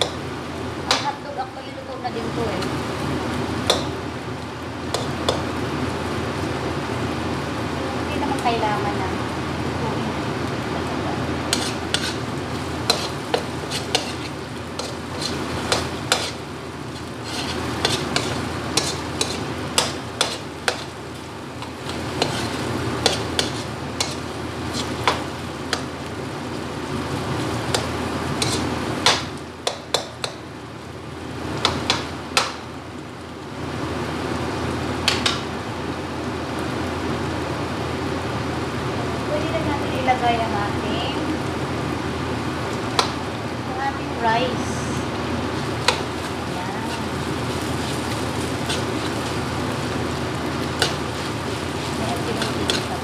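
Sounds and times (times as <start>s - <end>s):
food sizzling in a wok: 0.0s - 53.0s
metal ladle scraping a wok: 11.5s - 20.9s, 21.8s - 25.2s, 28.4s - 28.7s, 45.7s - 49.9s, 50.5s - 53.0s.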